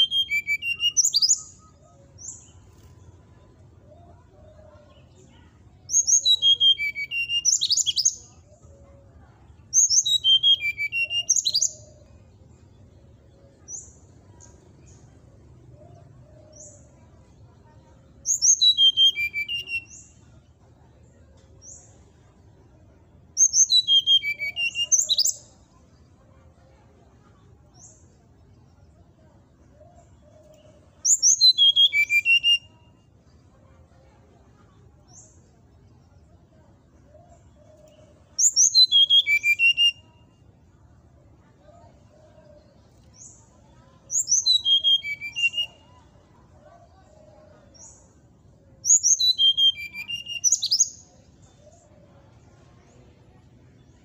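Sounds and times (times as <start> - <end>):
bird singing whistled notes: 0.0 - 2.6, 5.9 - 8.4, 9.8 - 12.0, 18.3 - 20.2, 23.4 - 25.6, 30.4 - 33.0, 37.8 - 40.4, 44.1 - 45.9, 48.8 - 51.0.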